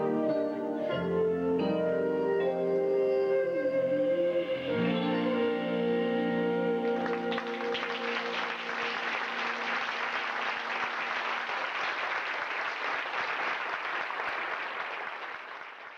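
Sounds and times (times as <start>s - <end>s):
held music chord: 0.0s - 8.7s
audience applause: 6.8s - 15.9s.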